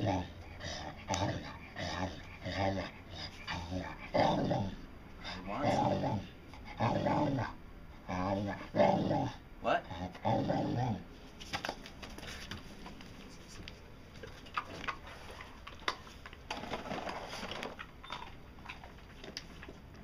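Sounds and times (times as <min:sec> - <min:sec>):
dog growly vocalisation: 0:00.0 - 0:11.1.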